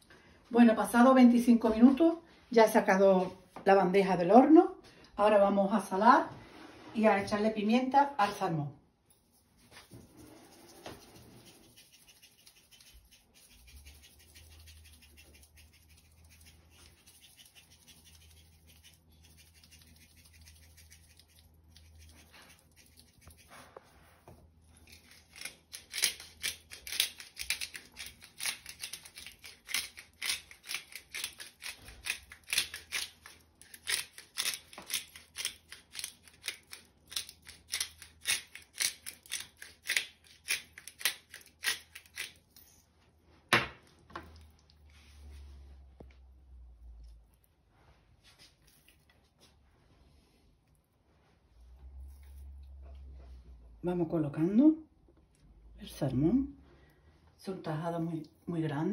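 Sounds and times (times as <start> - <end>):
pepper grinder ratcheting: 24.9 - 42.4.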